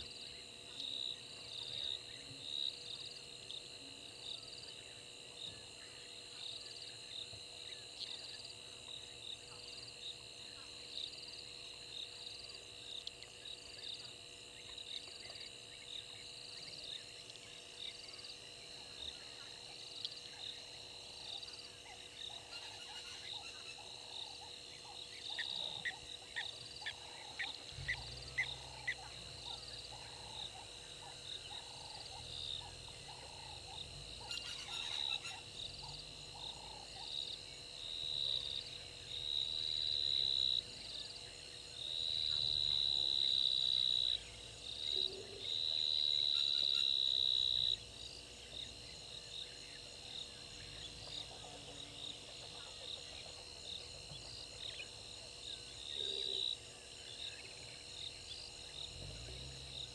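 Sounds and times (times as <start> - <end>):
high insect trill: 0.0 - 59.9
pulsing insect chirp: 0.0 - 59.9
frog croaking: 21.3 - 40.6, 50.0 - 56.6.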